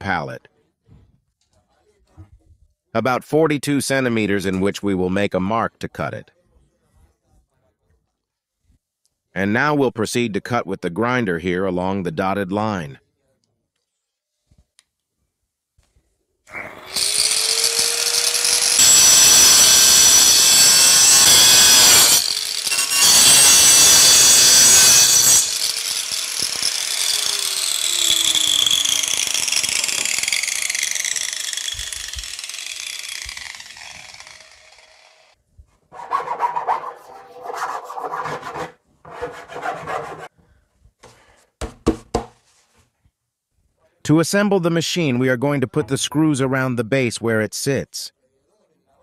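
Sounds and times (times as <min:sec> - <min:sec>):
angle grinder cutting plastic: 0:16.5 - 0:35.4
plastic knocks and scrapes: 0:41.0 - 0:42.8.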